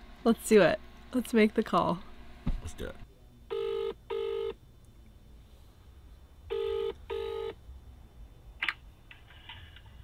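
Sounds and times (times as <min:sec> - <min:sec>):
phone ringback tone buzzing: 0:03.5 - 0:04.6, 0:06.5 - 0:07.6.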